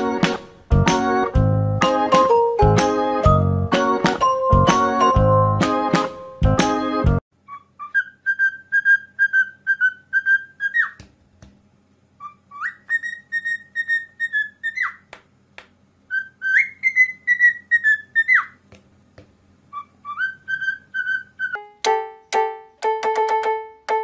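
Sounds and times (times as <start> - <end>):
cockatiel whistling: 7.4 - 11.0, 12.2 - 15.1, 16.1 - 18.6, 19.7 - 21.6.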